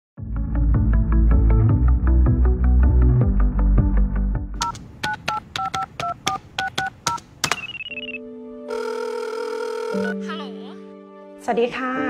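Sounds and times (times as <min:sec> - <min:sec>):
telephone keypad dialing tones: 0:04.6 - 0:10.2
warbling telephone ring: 0:07.6 - 0:10.2.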